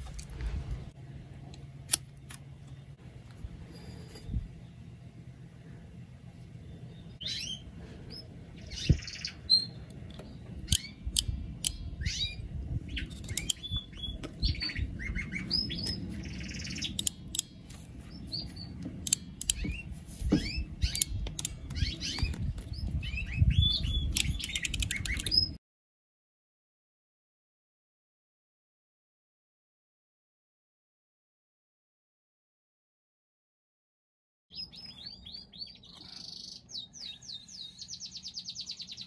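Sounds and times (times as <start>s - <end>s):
small birds chirping: 4.1s - 25.6s, 34.5s - 39.0s
crimping tool clicks: 19.0s - 19.6s, 20.9s - 22.7s.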